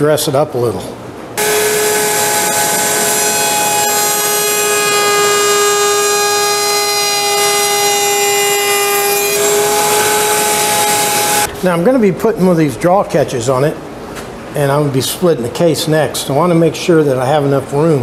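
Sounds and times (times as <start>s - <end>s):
wood router whining: 1.4s - 11.5s.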